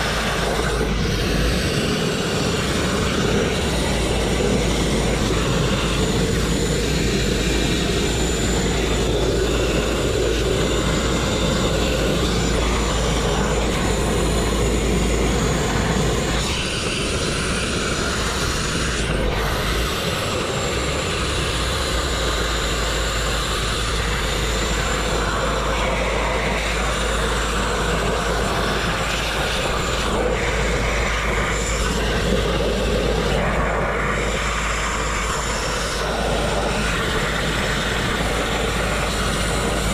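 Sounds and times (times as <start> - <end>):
grit blast nozzle hissing: 0.0 - 39.9.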